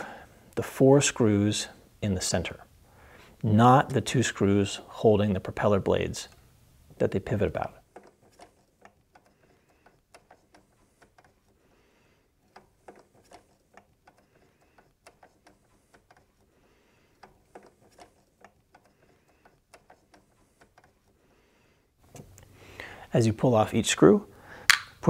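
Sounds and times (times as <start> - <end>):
screwdriver metallic clicks: 24.7 - 25.0.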